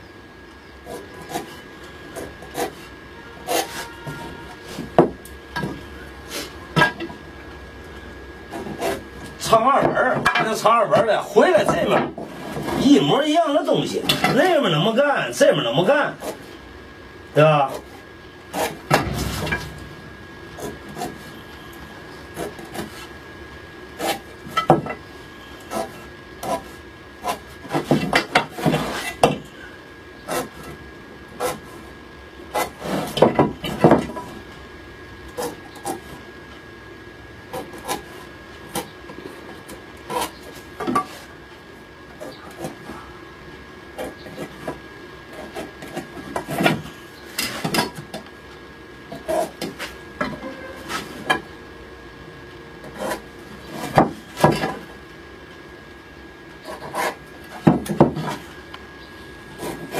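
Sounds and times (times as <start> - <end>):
pencil scratching on wood: 56.7 - 57.2.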